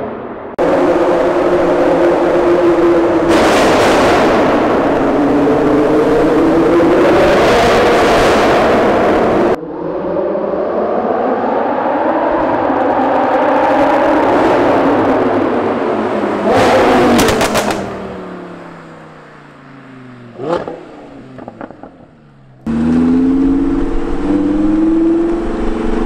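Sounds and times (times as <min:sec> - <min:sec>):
distant car engine accelerating: 0:00.0 - 0:26.0
sports car engine revving: 0:12.4 - 0:26.0.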